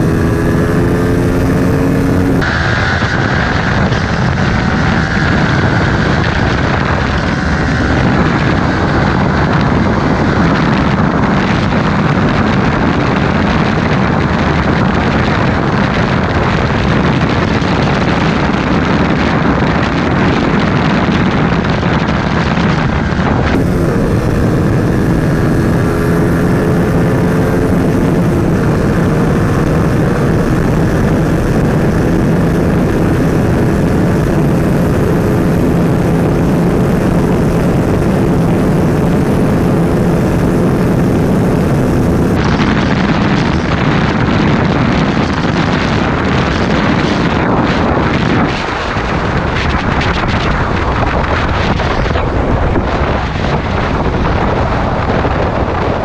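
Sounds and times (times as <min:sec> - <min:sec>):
motorcycle engine accelerating: 0:00.0 - 0:56.0
motorcycle engine running at speed: 0:00.0 - 0:56.0
wind rush over microphone: 0:00.0 - 0:56.0.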